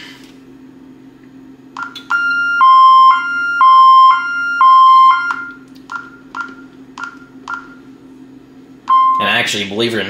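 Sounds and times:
keypad key-press beeps: 0:01.8 - 0:07.8, 0:08.9 - 0:09.2
two-tone alarm: 0:01.8 - 0:07.8.

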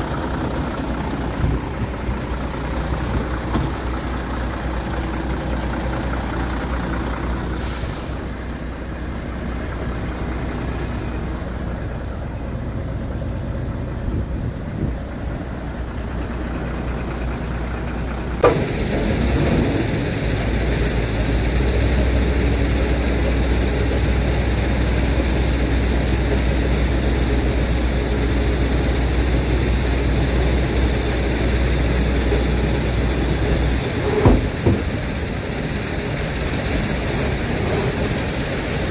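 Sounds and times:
diesel truck engine idling: 0:00.0 - 0:38.9
short air hiss: 0:07.6 - 0:08.4
hydraulic pump whine: 0:18.2 - 0:38.9.

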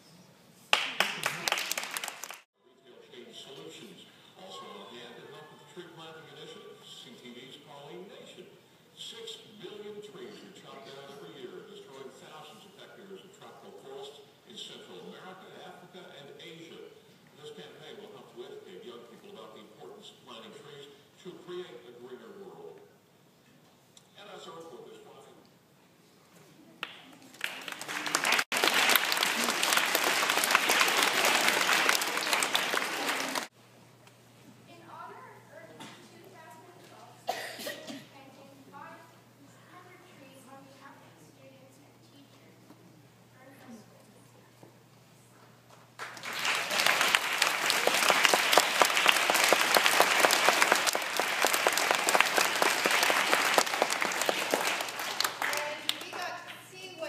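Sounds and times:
audience applauding: 0:00.7 - 0:02.5, 0:26.8 - 0:33.5, 0:46.0 - 0:56.2.

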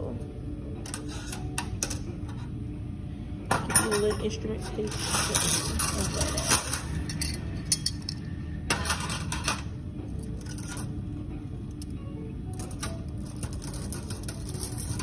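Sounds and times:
metal instruments clinking: 0:03.5 - 0:09.6, 0:12.5 - 0:15.0.

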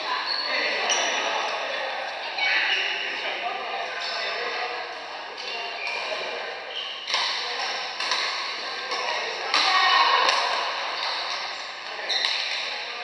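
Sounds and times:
racket hitting shuttlecock: 0:07.1 - 0:11.4.

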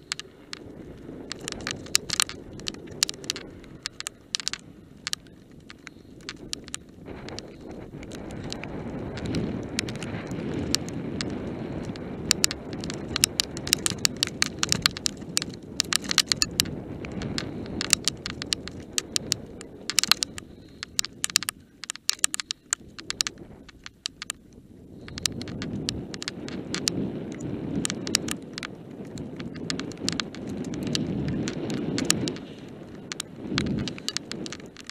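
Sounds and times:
bike tyres rumbling: 0:00.0 - 0:34.9
clicking rattles over stones: 0:00.0 - 0:34.9
wind: 0:00.0 - 0:34.9
tyres rumbling on gravel: 0:25.0 - 0:34.9.

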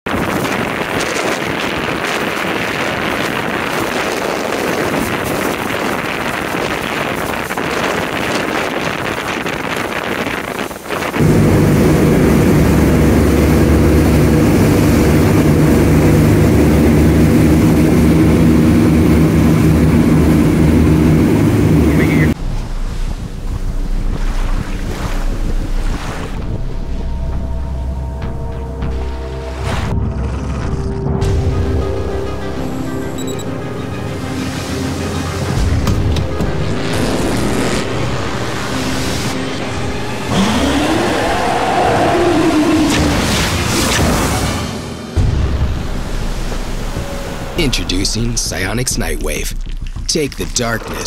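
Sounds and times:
wind and spray rushing: 0:00.1 - 0:27.0
boat engine drone: 0:00.1 - 0:51.0
sea noise: 0:00.1 - 0:51.0.

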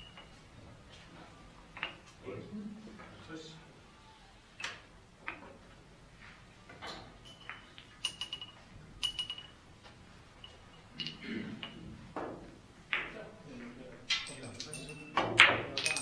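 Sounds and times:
billiard balls clicking: 0:01.7 - 0:02.2, 0:04.6 - 0:05.8, 0:06.8 - 0:13.2, 0:14.0 - 0:16.0.

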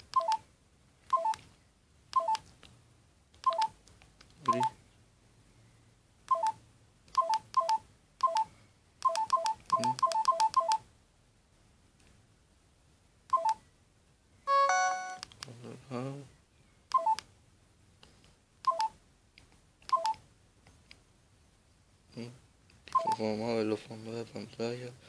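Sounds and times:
phone keypad beeps: 0:00.1 - 0:00.4, 0:01.1 - 0:01.4, 0:02.2 - 0:02.4, 0:03.4 - 0:03.8, 0:04.5 - 0:04.8, 0:06.3 - 0:06.6, 0:07.2 - 0:10.8, 0:13.3 - 0:13.6, 0:14.5 - 0:15.2, 0:16.9 - 0:17.2, 0:18.6 - 0:19.0, 0:19.9 - 0:20.2, 0:22.9 - 0:23.3.

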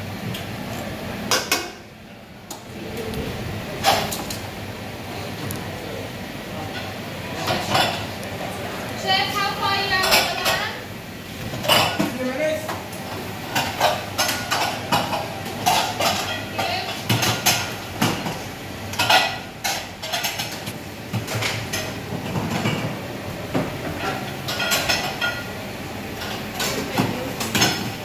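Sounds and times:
plates pots and utensils clinking: 0:06.7 - 0:08.2, 0:09.8 - 0:10.8, 0:11.4 - 0:25.6.

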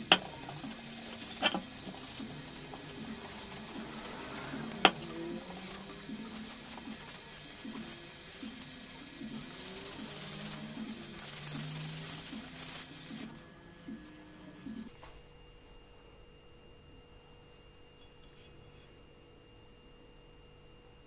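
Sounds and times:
tap water running into sink: 0:00.0 - 0:13.3.

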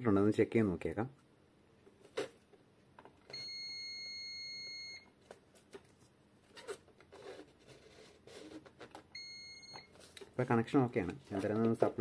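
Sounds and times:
multimeter continuity beep: 0:03.3 - 0:05.1, 0:09.2 - 0:09.9.

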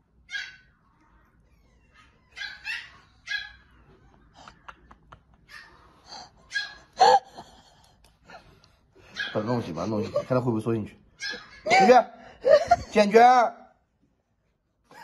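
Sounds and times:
small dog yipping and whimpering: 0:00.2 - 0:03.9, 0:05.5 - 0:07.3, 0:09.1 - 0:09.6, 0:11.2 - 0:12.0.

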